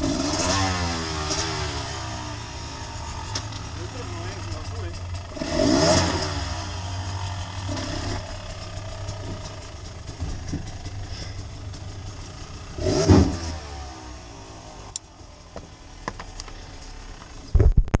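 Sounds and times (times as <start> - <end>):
vehicle engine running: 0.0 - 17.9.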